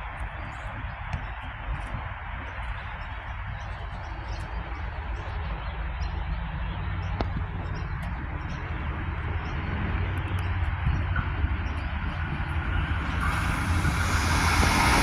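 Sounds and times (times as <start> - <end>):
birds chirping: 2.5 - 15.0
electric train approaching rumble: 3.6 - 15.0.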